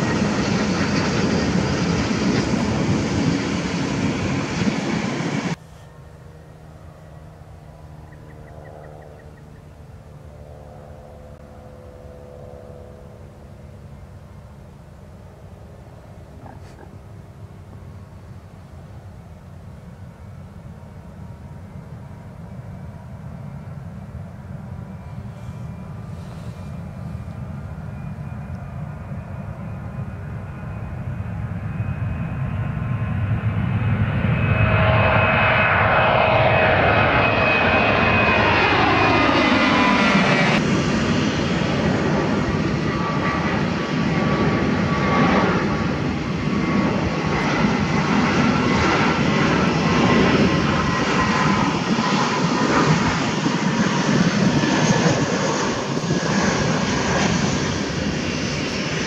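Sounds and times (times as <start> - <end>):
steady jet noise: 0.0 - 6.4, 13.0 - 59.0
jet engines spooling up: 0.0 - 6.5, 22.5 - 59.0
jet passing with falling whine: 0.0 - 59.0.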